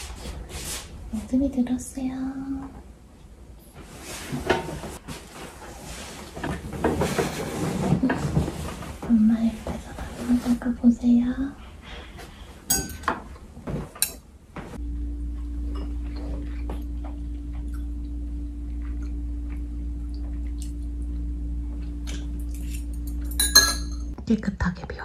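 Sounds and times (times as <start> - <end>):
chopsticks and dishes clinking: 12.7 - 13.2, 22.5 - 24.1
low hum: 14.5 - 24.3.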